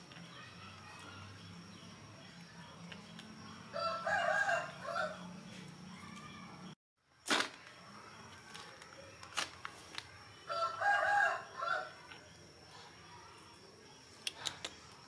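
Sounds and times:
rooster crowing: 3.7 - 5.3, 10.5 - 12.0.

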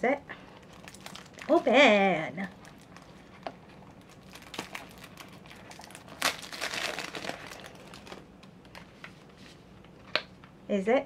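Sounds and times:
packaging rustling: 0.5 - 9.9
wrapper ripping: 0.6 - 8.8.

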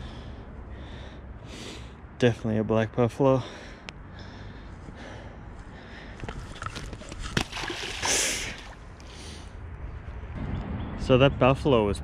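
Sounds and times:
fish splashing into water: 6.5 - 8.8.

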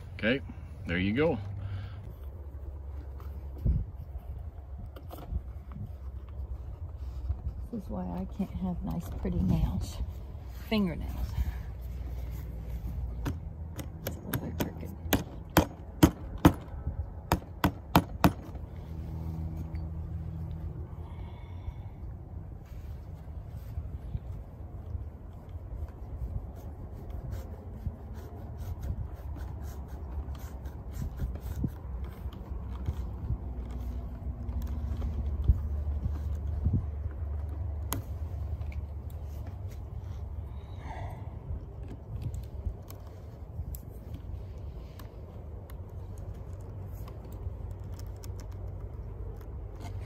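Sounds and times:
low steady rumble: 0.0 - 50.0
leather and buckle scrapes and clicks: 22.6 - 40.5, 41.8 - 50.0.

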